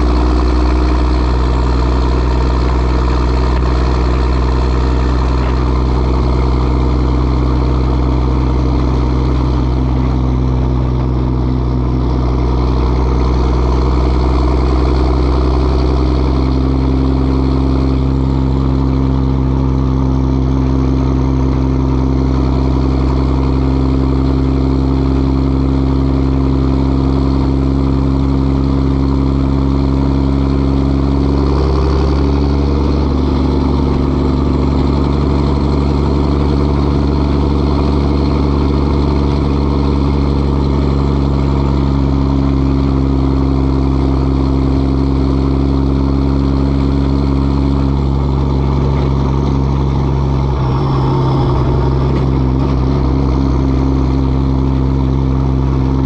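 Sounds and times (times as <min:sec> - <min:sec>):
diesel truck exhaust: 0:00.0 - 0:56.0.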